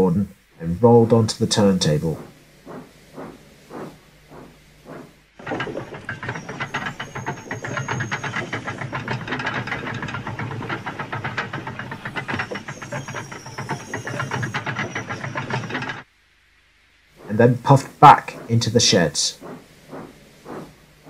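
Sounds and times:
faint high whine: 0.0s - 21.0s
clattering rattle with hiss: 0.9s - 16.1s, 17.0s - 21.0s.

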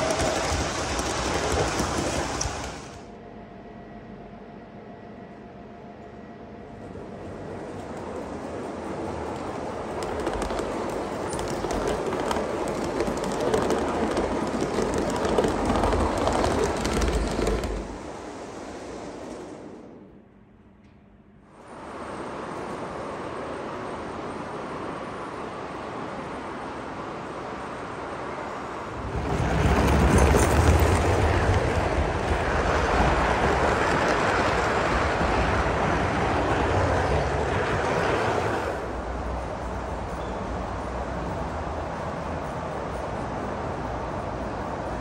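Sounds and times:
model train wheels rumbling: 0.0s - 3.0s, 7.0s - 20.1s, 28.8s - 45.0s
clicks over rail joints: 9.9s - 18.1s.

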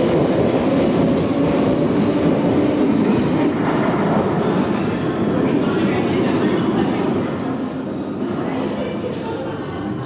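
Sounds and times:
subway train rumbling and rattling: 0.0s - 10.0s.

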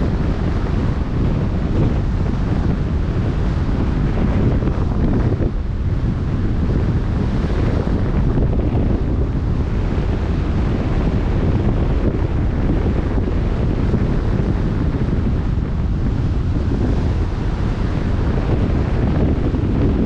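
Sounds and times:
choppy sea water rushing: 0.0s - 20.0s
wind buffeting microphone: 0.0s - 20.0s.

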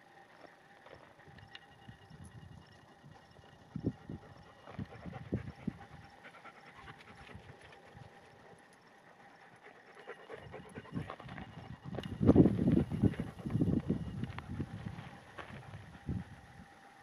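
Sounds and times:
dog panting: 4.0s - 16.6s.

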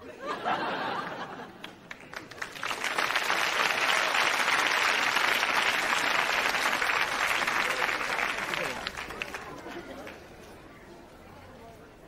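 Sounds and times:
crowd applauding: 0.9s - 10.3s.

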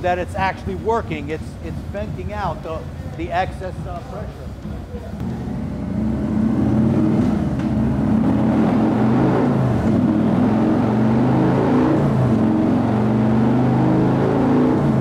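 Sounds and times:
motorcycle engine running: 3.8s - 10.9s.

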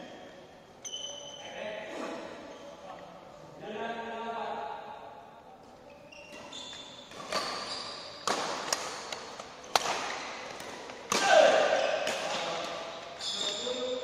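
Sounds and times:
shoes squeaking on court floor: 0.8s - 3.0s, 5.6s - 11.0s, 11.6s - 14.0s
racket hitting shuttlecock: 6.3s - 12.7s.

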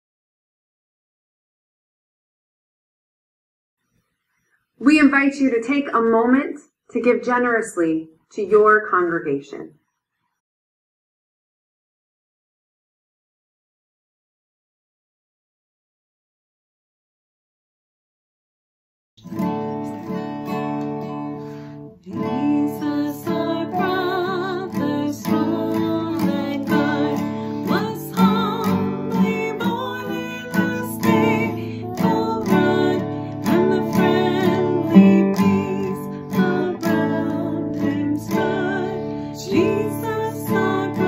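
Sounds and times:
strummed acoustic guitar: 19.2s - 41.0s
woman and girl singing: 22.1s - 41.0s.

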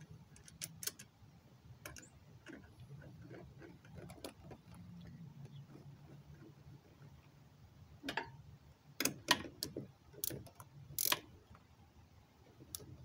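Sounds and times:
socket wrench clicking: 0.3s - 1.1s, 9.0s - 11.3s.

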